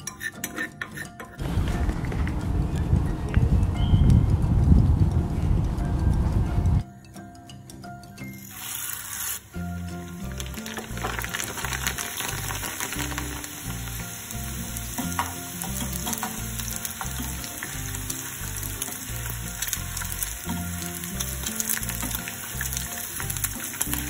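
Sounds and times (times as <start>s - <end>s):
wire skimmer stirring: 0.0s - 2.5s, 10.3s - 13.8s
background music with low bass: 0.0s - 8.4s, 9.5s - 24.0s
food deep-frying in oil: 8.2s - 24.0s.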